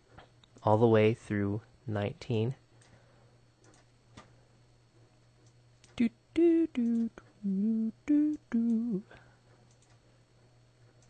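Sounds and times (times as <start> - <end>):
man humming a tune: 6.0 - 9.2.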